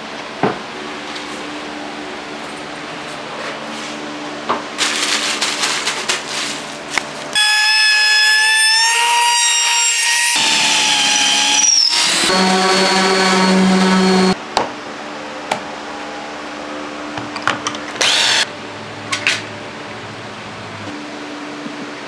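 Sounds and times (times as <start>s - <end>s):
trim router whining: 7.3s - 14.4s, 18.0s - 18.5s.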